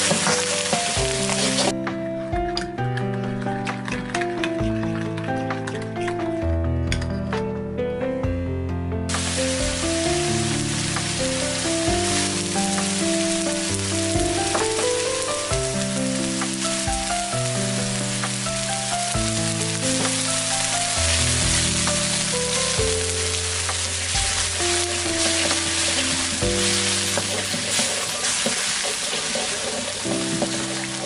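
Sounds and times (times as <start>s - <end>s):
lemongrass sizzling in hot oil: 0.0s - 1.7s, 9.1s - 31.0s
background music of held notes: 0.0s - 28.8s, 30.0s - 31.0s.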